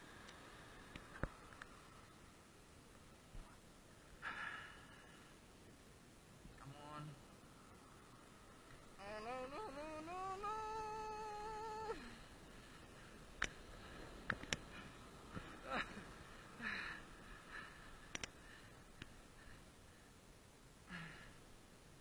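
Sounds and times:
faint clicks: 0.2s - 1.8s, 13.3s - 13.6s, 14.2s - 15.5s, 18.0s - 19.2s
short downward sounds: 9.0s - 12.2s
person humming: 9.0s - 12.3s.

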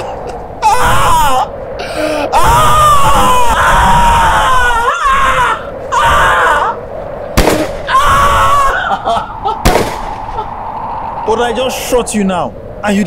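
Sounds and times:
man wailing in anguish: 0.6s - 6.8s, 7.9s - 9.6s.

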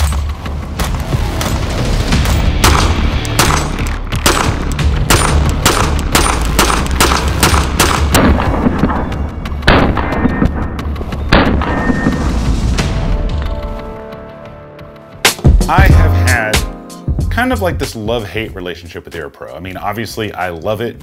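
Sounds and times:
handgun shots: 2.6s - 8.4s
music with heavy bass: 15.3s - 17.9s.

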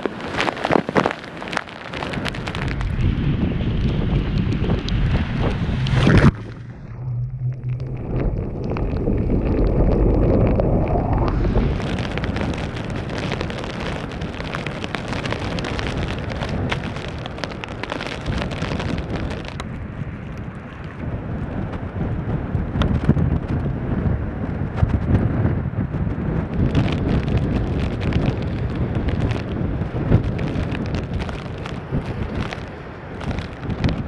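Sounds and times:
blizzard wind gusts on microphone: 0.0s - 34.0s
surf churning against a seawall: 0.0s - 34.0s
rising rush: 4.6s - 13.6s.

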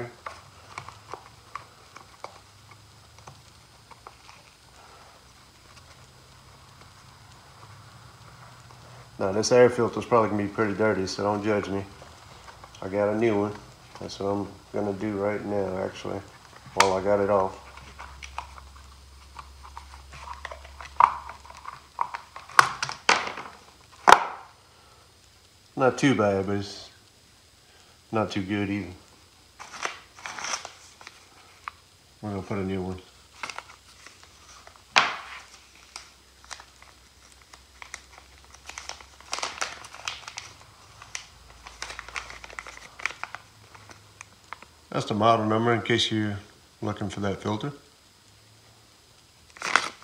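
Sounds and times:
faint low hum: 0.0s - 50.0s
plastic cover snapping: 17.7s - 24.5s, 29.6s - 31.8s, 33.4s - 43.9s, 49.5s - 50.0s
clicks and taps on plastic cover: 19.3s - 24.5s.

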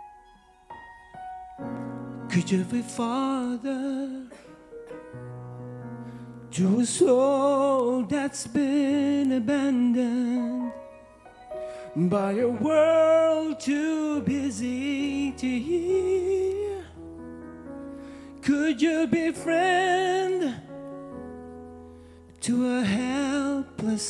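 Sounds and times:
sustained keyboard chords: 0.0s - 24.0s
man singing with vibrato: 2.2s - 4.6s, 6.5s - 11.1s, 11.7s - 17.0s, 18.4s - 20.8s, 22.4s - 24.0s.

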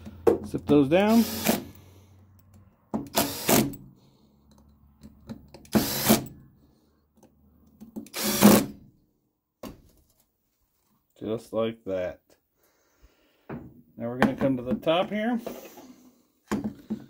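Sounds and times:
cordless drill running: 1.1s - 1.8s, 3.1s - 3.8s, 5.7s - 6.3s, 8.1s - 8.8s.

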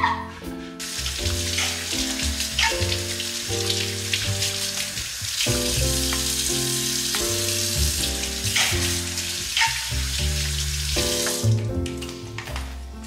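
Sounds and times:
background music: 0.0s - 13.0s
tap water running into sink: 0.8s - 13.0s.

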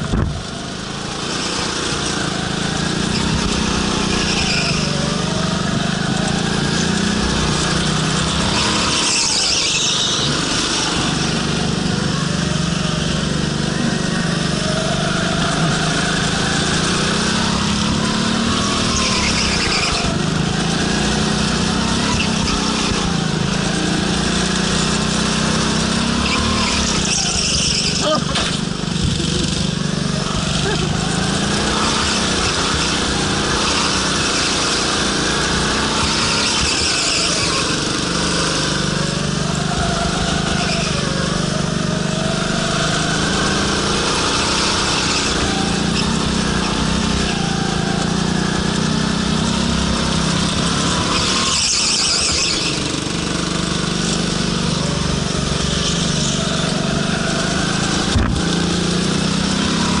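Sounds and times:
go-kart engine revving: 0.0s - 60.0s
tyres squealing: 26.0s - 38.6s, 50.5s - 60.0s.

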